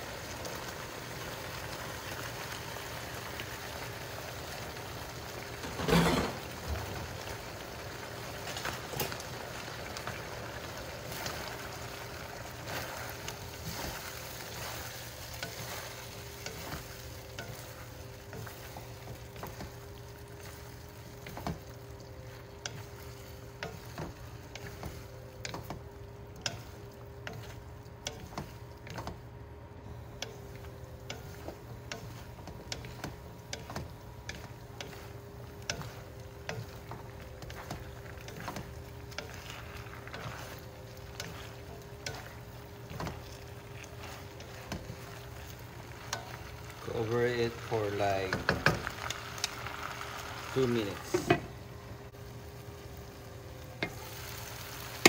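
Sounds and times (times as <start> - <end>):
food sizzling in a pan: 0.0 - 55.0
wooden spatula scraping a pan: 12.4 - 25.8, 30.3 - 49.0.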